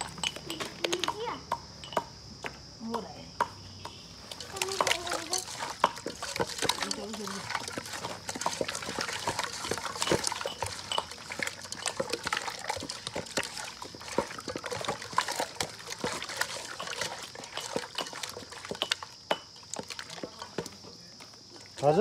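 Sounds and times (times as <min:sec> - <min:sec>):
hands squelching chicken in marinade: 0:04.3 - 0:20.8.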